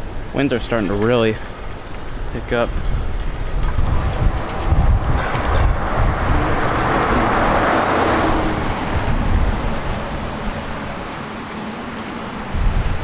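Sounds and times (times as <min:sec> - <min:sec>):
wind buffeting microphone: 0:00.2 - 0:13.0
pickup truck driving past: 0:03.3 - 0:12.3.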